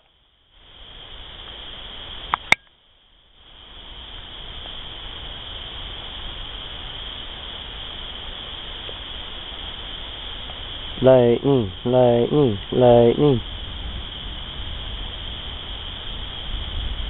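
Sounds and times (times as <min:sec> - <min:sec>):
chorus of night animals: 0:03.4 - 0:17.0.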